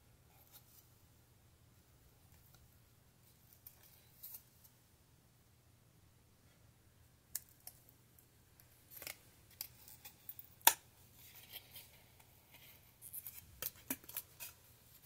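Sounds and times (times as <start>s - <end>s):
hands handling plastic toy: 8.6s - 15.0s.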